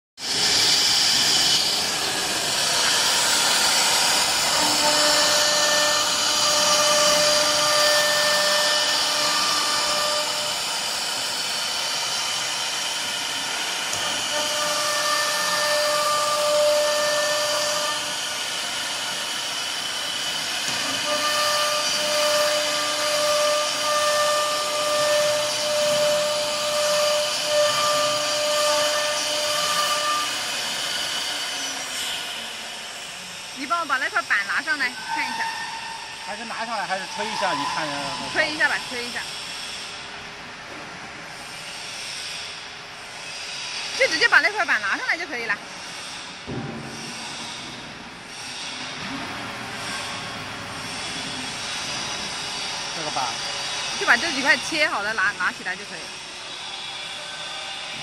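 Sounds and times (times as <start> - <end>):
router spindle cutting wood: 0.2 - 35.5, 36.2 - 39.8, 51.2 - 56.2
dust extraction hose rushing: 0.2 - 40.2, 41.1 - 58.0
steady whine: 0.2 - 43.2.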